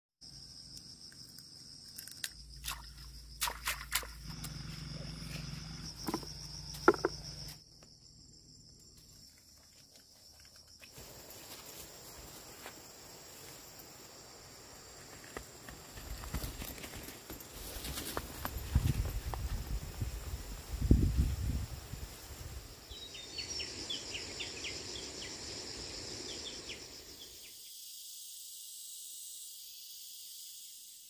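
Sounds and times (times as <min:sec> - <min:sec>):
footsteps through grass: 0:09.4 - 0:13.6, 0:15.7 - 0:19.6
high-pitched insect trilling: 0:20.3 - 0:31.0.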